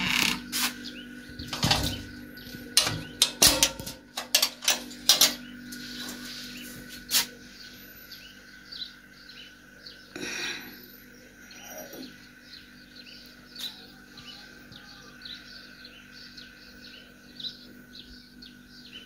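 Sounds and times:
metal gate bolt clacking: 0:02.8 - 0:05.4.

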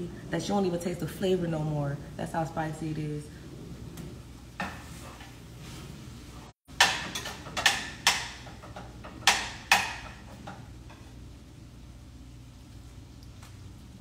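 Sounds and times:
utensil knocking against pan: 0:06.7 - 0:10.6.

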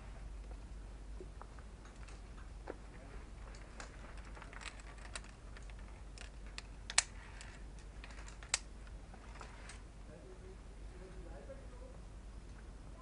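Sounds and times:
climbing gear clicking: 0:03.4 - 0:08.7.

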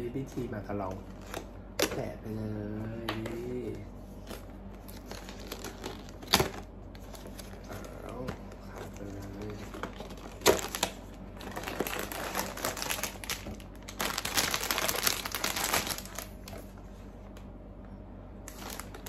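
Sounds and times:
packaging bag crinkling: 0:04.2 - 0:16.8, 0:18.5 - 0:19.0.

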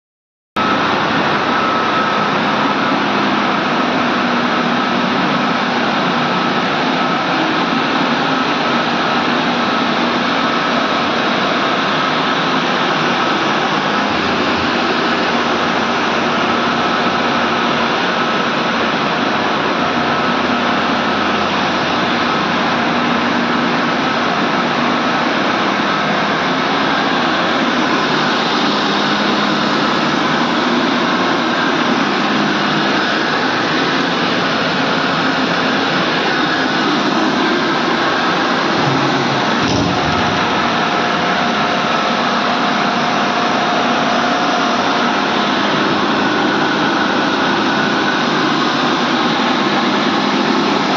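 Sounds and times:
faint high whine: 0:00.6 - 0:18.6
boiler burner roaring: 0:00.6 - 0:50.9
low hum: 0:36.4 - 0:41.2.

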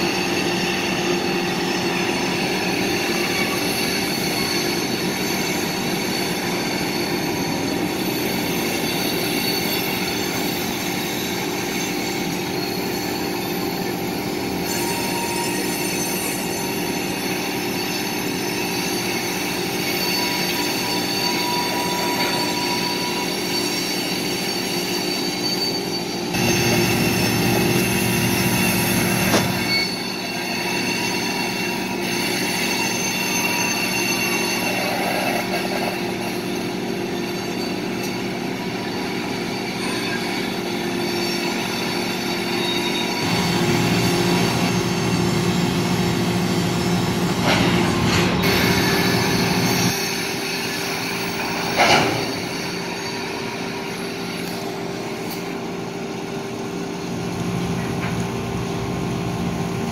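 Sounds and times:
train wheels squealing: 0:00.0 - 0:59.9.

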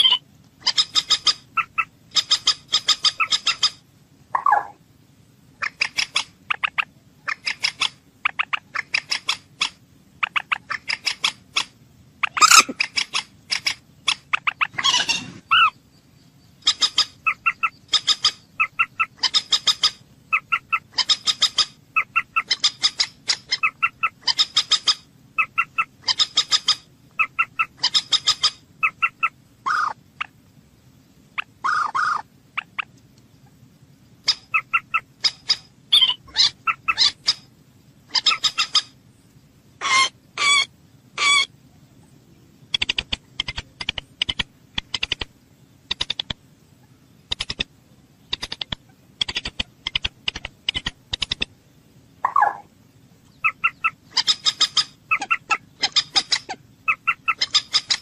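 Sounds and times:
moorhen calling: 0:00.0 - 0:04.8, 0:05.6 - 0:30.4, 0:31.3 - 0:37.5, 0:38.1 - 0:39.0, 0:39.8 - 0:41.6, 0:52.2 - 0:58.0.

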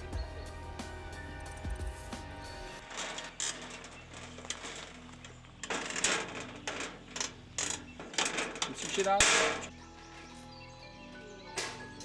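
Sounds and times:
wire scraping and rattling: 0:02.8 - 0:09.7.

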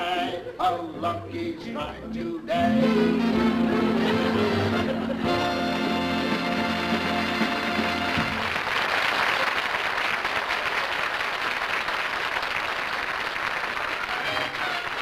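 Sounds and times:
sung jingle with orchestra: 0:02.5 - 0:08.4
audience applauding: 0:05.3 - 0:15.0.

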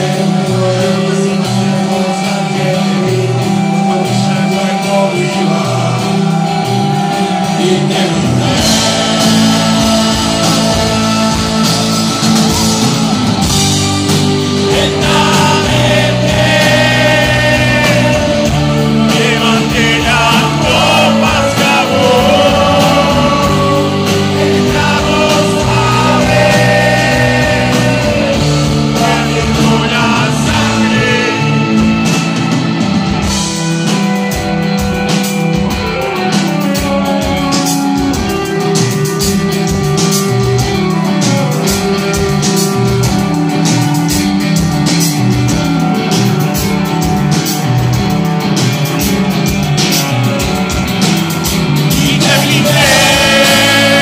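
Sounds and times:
man singing: 0:00.0 - 0:12.3, 0:14.1 - 0:32.6, 0:51.8 - 0:54.0
drums and cymbals: 0:00.0 - 0:54.0
rock band playing: 0:00.0 - 0:54.0.

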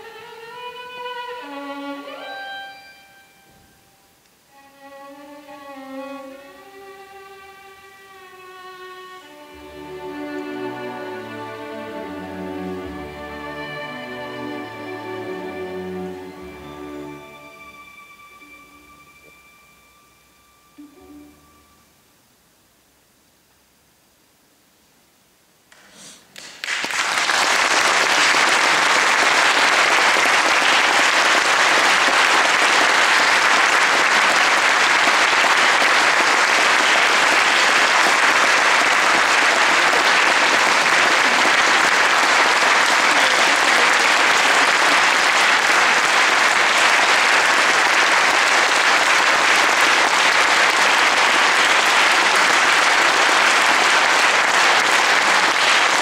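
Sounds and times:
audience applause: 0:26.4 - 0:56.0.

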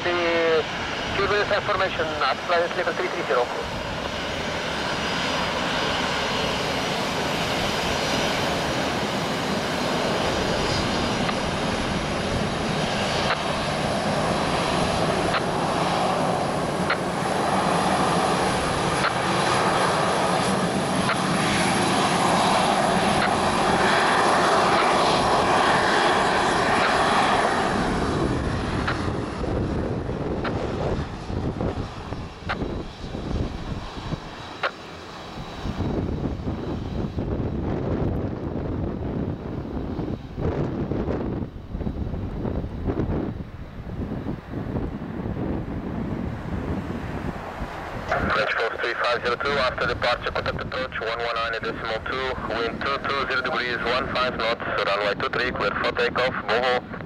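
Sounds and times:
jet engines taxiing: 0:00.0 - 0:57.0.

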